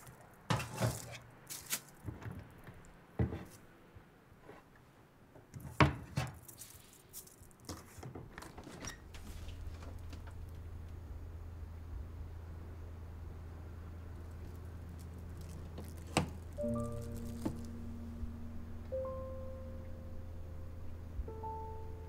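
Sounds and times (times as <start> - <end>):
steady low hum: 9.0 - 22.0.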